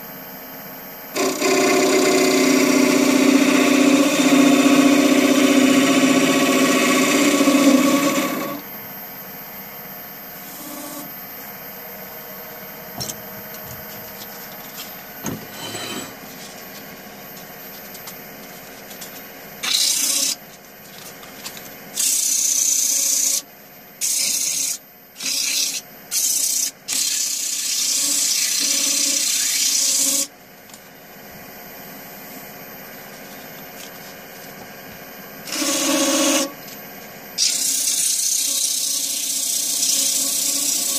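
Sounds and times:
lathe humming: 0:01.2 - 0:08.6, 0:35.5 - 0:36.5
turning tool cutting wood: 0:01.2 - 0:08.6, 0:19.6 - 0:20.4, 0:21.9 - 0:23.4, 0:24.0 - 0:30.3, 0:35.4 - 0:36.6, 0:37.4 - 0:40.9.

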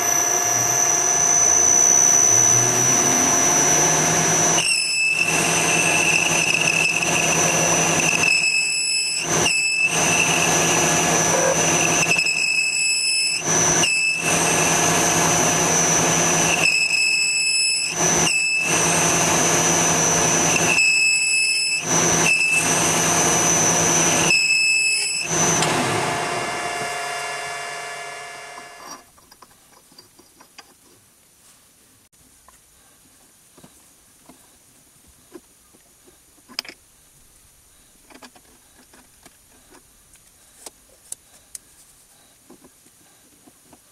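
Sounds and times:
metal lathe whining: 0:00.0 - 0:29.1.

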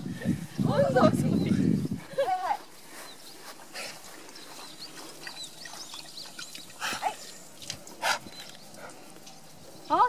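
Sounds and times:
small birds chirping: 0:00.0 - 0:10.0.

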